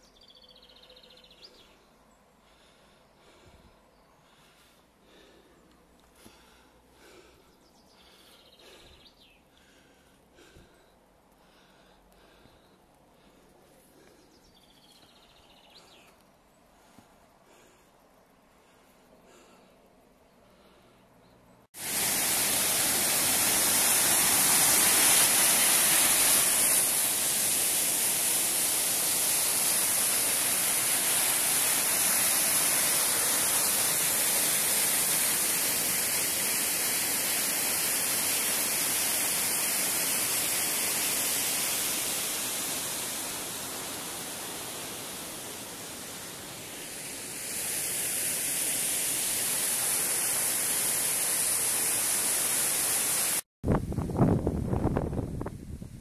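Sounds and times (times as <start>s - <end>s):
waterfall cascading over rocks: 21.8s - 53.5s.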